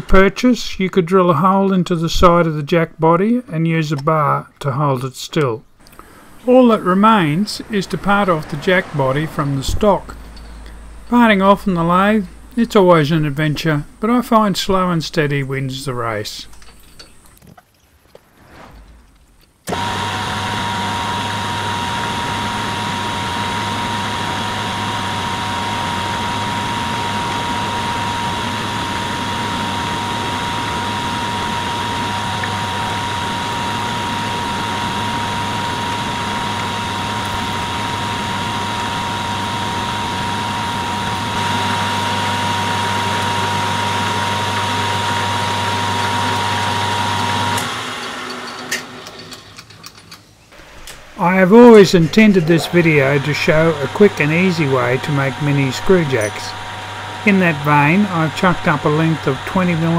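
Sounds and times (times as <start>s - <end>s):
lathe winding down: 5.9s - 15.2s, 19.6s - 49.3s, 50.6s - 59.9s
metal lathe running: 6.0s - 14.5s, 19.7s - 49.4s, 50.6s - 59.9s.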